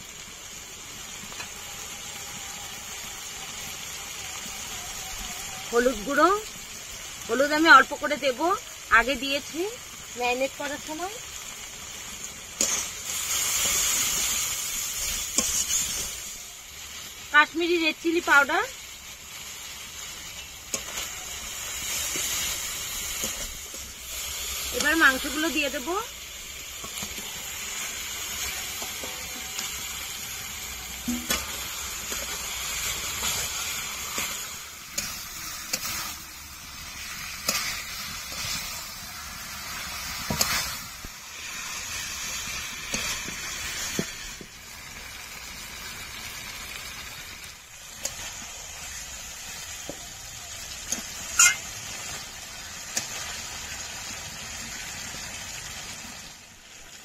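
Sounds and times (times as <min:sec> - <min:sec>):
chicken sizzling in oil: 0:00.0 - 0:57.0
spatula scraping and knocking pan: 0:50.9 - 0:51.6.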